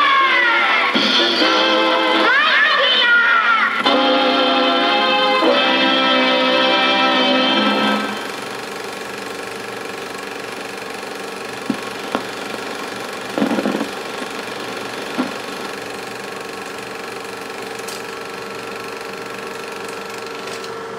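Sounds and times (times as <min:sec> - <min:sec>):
film projector whirring: 0:00.0 - 0:20.9
sharp knocks: 0:13.4 - 0:14.0.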